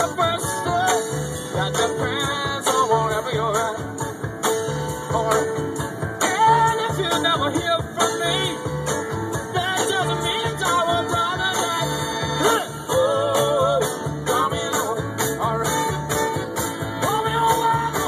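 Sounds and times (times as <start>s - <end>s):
song with singing over beat: 0.0s - 18.0s.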